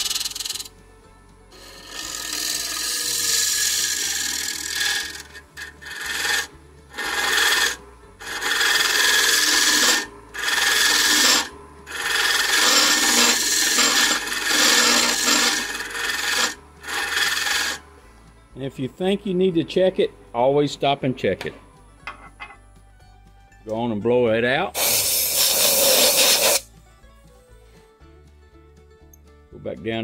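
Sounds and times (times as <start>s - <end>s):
scraper cutting wood on lathe: 0.0s - 0.7s, 1.6s - 17.8s, 24.8s - 26.7s.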